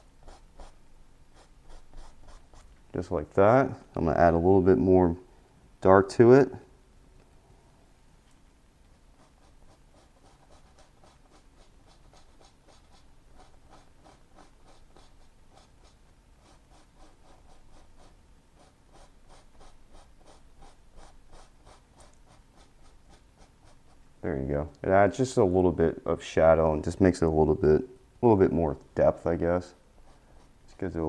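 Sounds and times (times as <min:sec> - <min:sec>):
brush strokes on canvas: 0:29.3 - 0:31.0.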